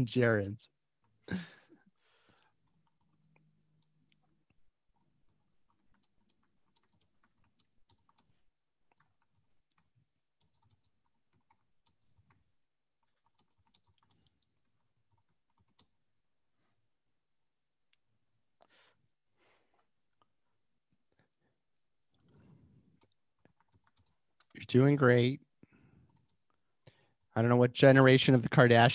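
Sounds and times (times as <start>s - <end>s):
faint keyboard typing: 2.3s - 16.1s, 22.1s - 24.7s, 25.6s - 27.3s.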